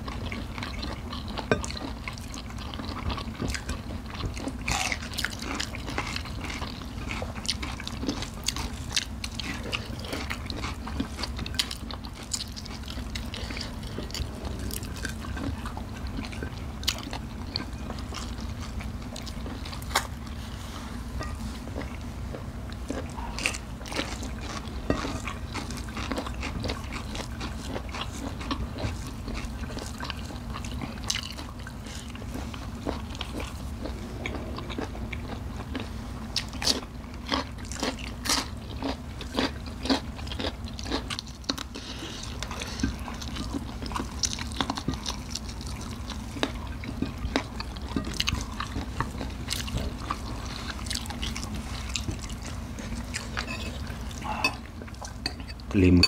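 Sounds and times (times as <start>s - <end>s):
crunching and chewing vegetables: 0.0s - 56.0s
steady low hum: 0.0s - 56.0s.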